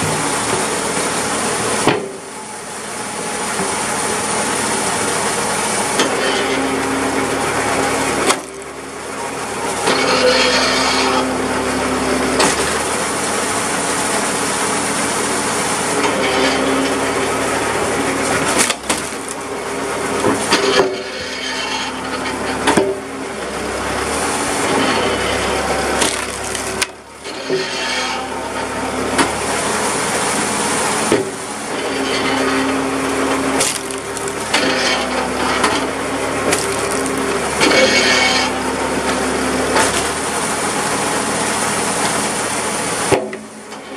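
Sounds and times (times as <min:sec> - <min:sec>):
hydraulic wood splitter running: 0:00.0 - 0:43.9
wood cracking as it splits: 0:08.2 - 0:08.7, 0:18.2 - 0:19.5, 0:25.8 - 0:27.0, 0:33.6 - 0:34.7, 0:36.5 - 0:37.4.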